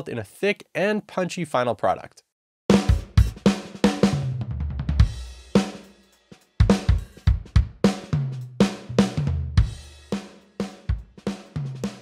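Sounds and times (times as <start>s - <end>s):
heavily compressed drum loop: 2.7s - 12.0s.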